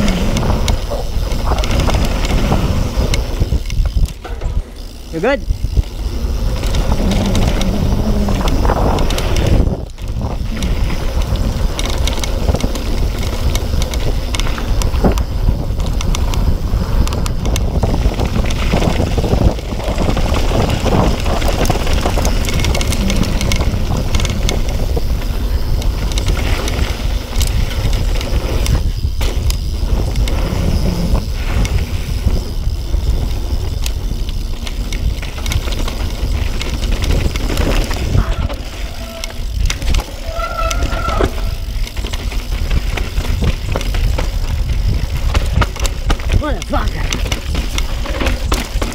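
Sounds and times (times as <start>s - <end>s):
bike rattles and clacks: 0.0s - 48.9s
tyre noise on dirt: 0.0s - 48.9s
wind rush on microphone: 0.0s - 48.9s.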